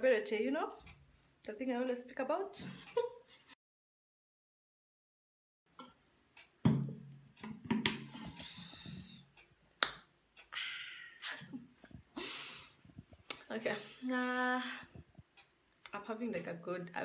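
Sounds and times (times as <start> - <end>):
water bottle knock: 6.6 - 8.0.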